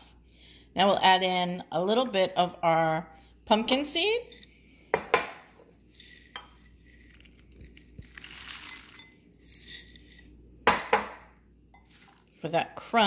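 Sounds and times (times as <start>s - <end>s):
seeds pattering onto salad: 5.9s - 10.2s, 11.8s - 12.4s.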